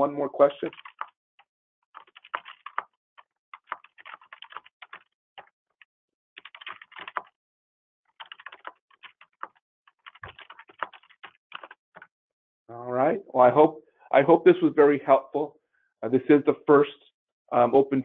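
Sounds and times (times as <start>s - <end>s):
keyboard typing: 0.7s - 7.4s, 8.1s - 12.1s.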